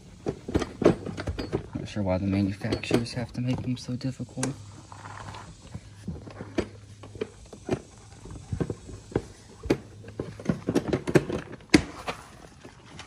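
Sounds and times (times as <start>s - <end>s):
plastic parts knocking and clicking: 0.2s - 1.8s, 5.7s - 12.2s.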